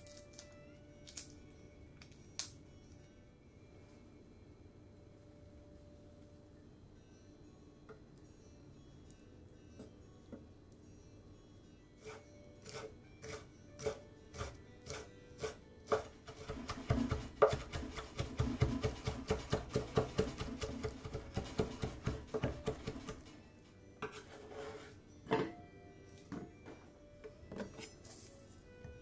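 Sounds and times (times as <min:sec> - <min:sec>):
knife chopping on cutting board: 0:12.0 - 0:23.2.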